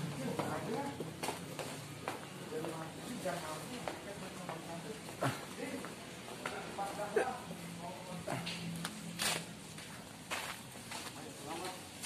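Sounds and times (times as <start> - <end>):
footsteps scuffing on brick paving: 0.3 - 2.8, 9.2 - 12.0.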